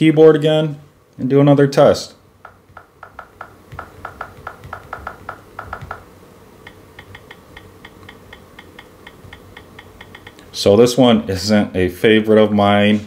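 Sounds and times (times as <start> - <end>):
higher two-tone clicks: 6.6 - 10.4.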